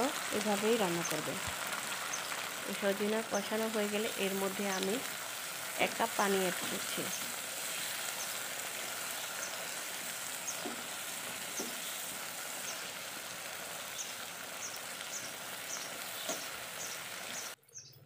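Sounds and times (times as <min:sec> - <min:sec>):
curry sizzling and bubbling in a pan: 0:00.0 - 0:17.6.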